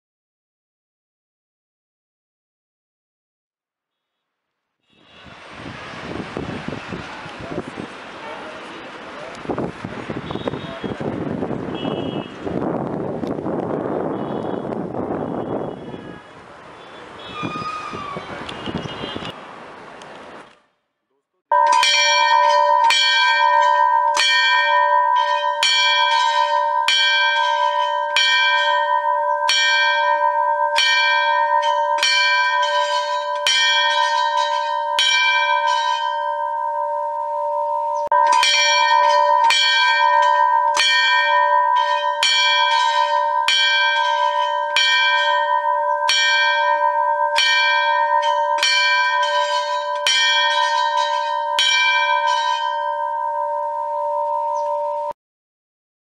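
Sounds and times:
temple bell ringing: 21.5 - 55.2.

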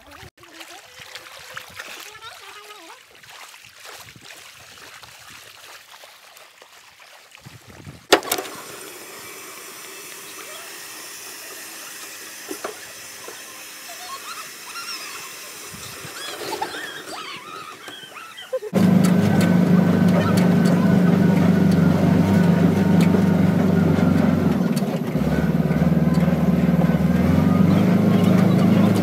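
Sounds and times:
stream trickling over rocks: 0.0 - 8.1
faint voices: 10.3 - 29.0.

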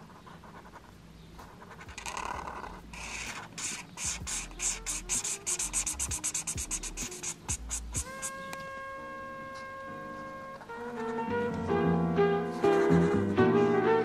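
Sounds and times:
marker scratching on paper: 0.0 - 8.6.

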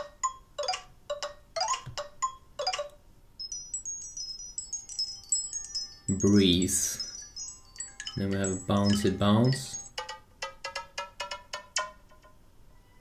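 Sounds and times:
bell-like chime ringtone: 1.6 - 10.0
high-pitched tinkling melody: 1.6 - 10.0.

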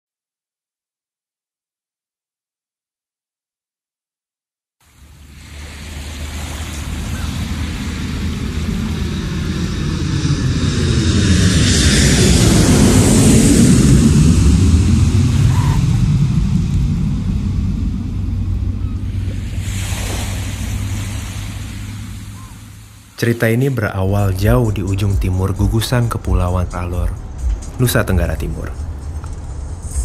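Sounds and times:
deep engine rumble passing by: 5.1 - 23.2, 24.0 - 30.0.

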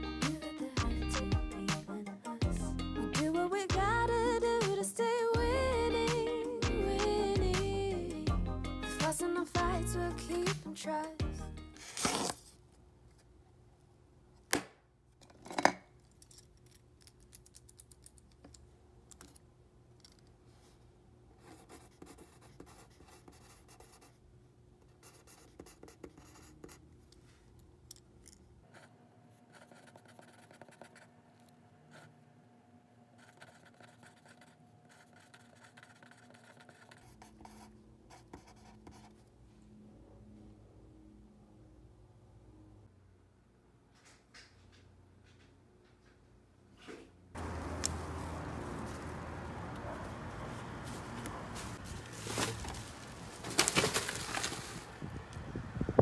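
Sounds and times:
page turning: 11.8 - 12.6, 50.9 - 55.0
pencil scratching on paper: 21.4 - 24.2, 24.8 - 26.8, 28.7 - 31.2, 33.2 - 39.2.

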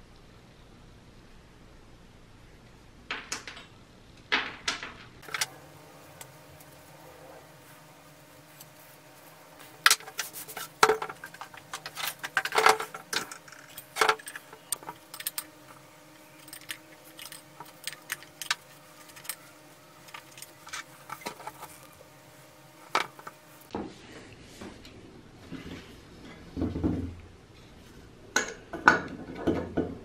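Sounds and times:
metal parts clinking and scraping: 5.2 - 5.5, 9.8 - 21.9.

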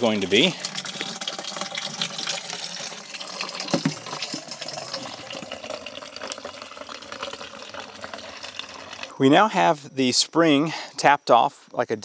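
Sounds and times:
spring water trickling: 0.0 - 9.8
plastic bucket knocks: 3.6 - 4.4.

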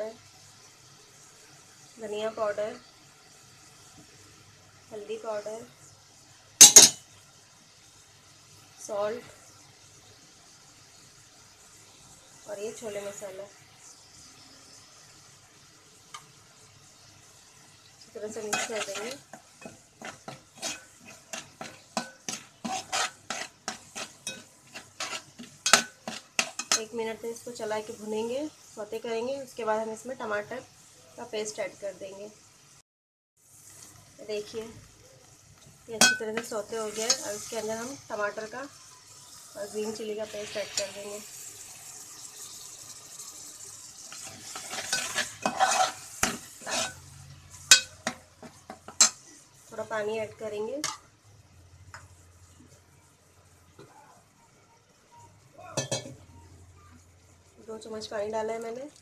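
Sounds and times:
food sizzling: 0.0 - 32.8, 33.4 - 59.0
spoon clinking against pot: 6.6 - 7.0, 18.5 - 26.9, 55.8 - 56.2
spoon scraping metal pot: 18.3 - 26.9, 36.0 - 38.1, 44.1 - 49.4.

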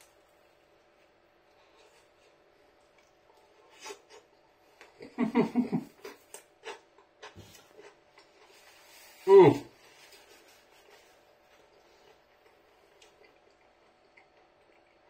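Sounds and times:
person chewing food: 0.1 - 5.0, 5.9 - 8.7, 10.2 - 15.0
person humming in enjoyment: 9.2 - 9.7.

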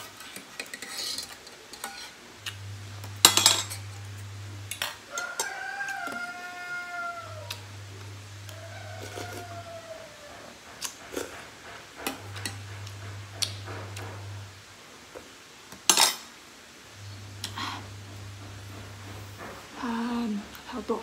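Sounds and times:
cutlery clinking on ceramic bowl: 3.3 - 3.9.

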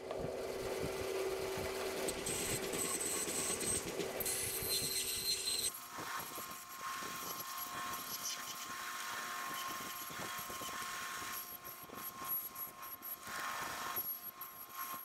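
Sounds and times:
bandsaw cutting wood: 0.6 - 5.7.

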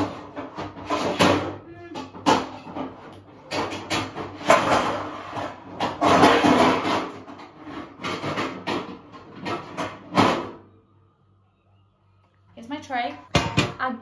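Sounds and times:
cookware clattering and knocking: 0.0 - 10.6, 13.3 - 13.9
tray rattling and scraping: 0.0 - 10.6.

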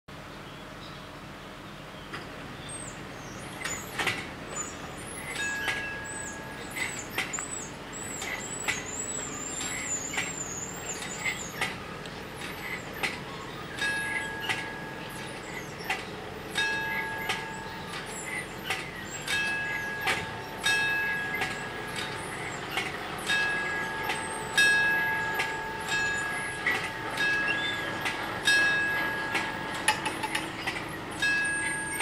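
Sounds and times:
level crossing bells ringing: 5.2 - 11.6, 13.5 - 32.0.

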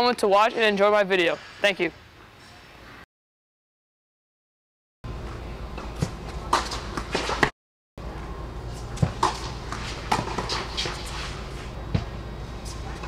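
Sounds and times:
tennis ball bouncing on hard court: 5.8 - 7.5, 9.0 - 11.2
tennis ball struck by rackets: 5.8 - 7.5, 9.0 - 11.1.

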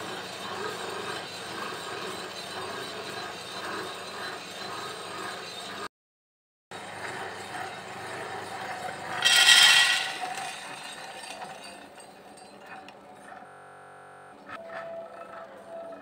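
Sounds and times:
roaster machine running: 0.0 - 5.9, 6.7 - 16.0
coffee beans rattling into metal tray: 8.9 - 12.4.

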